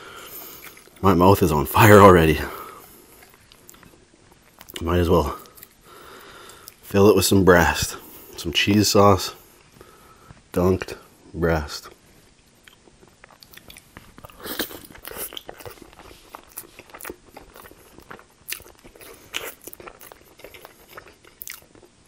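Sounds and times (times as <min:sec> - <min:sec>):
close chewing with mouth clicks: 0:12.6 - 0:22.0.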